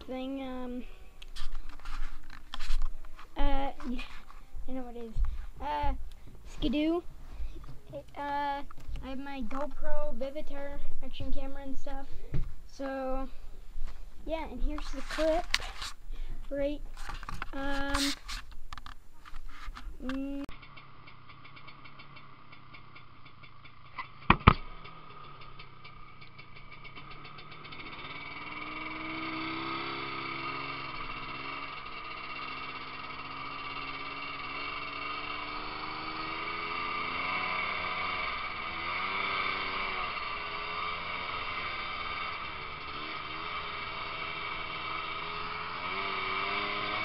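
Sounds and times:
sharp knocks: 24.2s - 24.9s
snowmobile engine revving: 27.3s - 47.0s.

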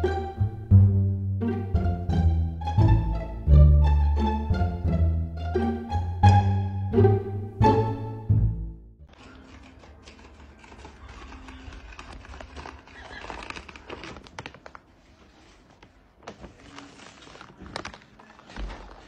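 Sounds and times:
plastic bag crinkling: 9.1s - 19.0s.

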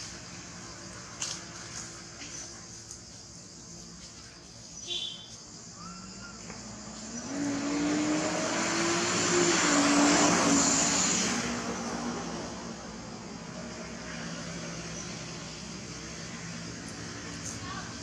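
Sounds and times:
vehicle passing by: 6.6s - 18.0s.

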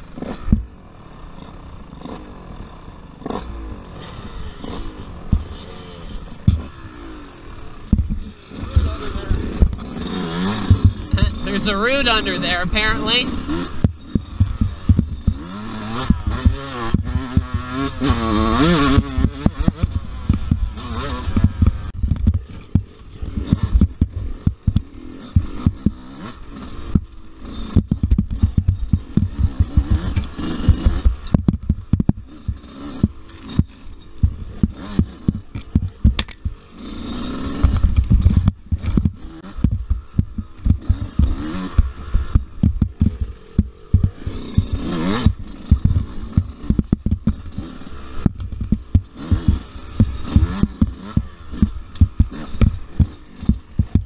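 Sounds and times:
dirt bike engine revving: 0.0s - 54.0s
bike knocking and clattering: 6.4s - 6.8s, 7.8s - 9.9s, 10.5s - 11.3s, 13.5s - 36.7s, 37.4s - 54.0s.

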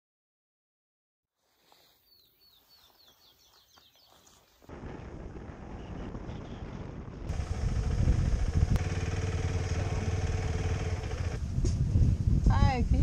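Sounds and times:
wind and road noise: 4.2s - 13.0s
motorcycle engine drone: 4.7s - 12.6s.

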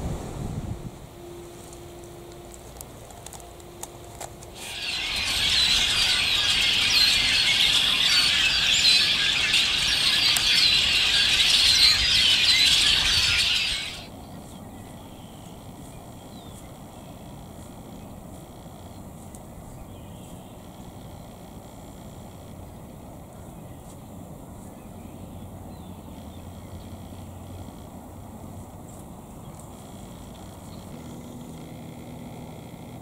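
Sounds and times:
flock of blackbirds chattering: 4.6s - 17.1s.

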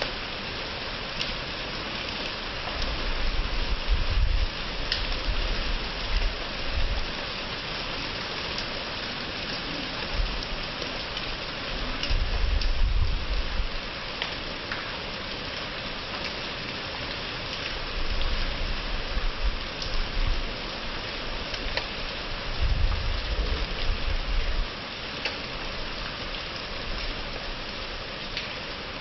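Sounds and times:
heavy rain falling: 0.0s - 29.0s
raindrop taps: 14.2s - 15.0s, 28.3s - 28.6s.

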